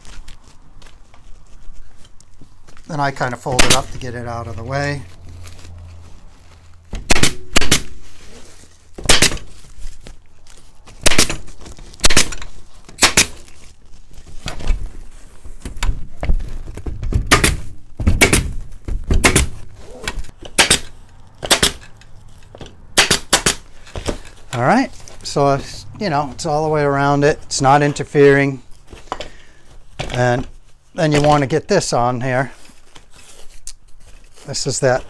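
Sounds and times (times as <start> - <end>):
pneumatic stapler firing: 11.0 - 11.4, 12.0 - 13.4, 17.3 - 17.6, 18.2 - 18.5, 19.2 - 19.6, 20.6 - 21.9, 23.0 - 23.6.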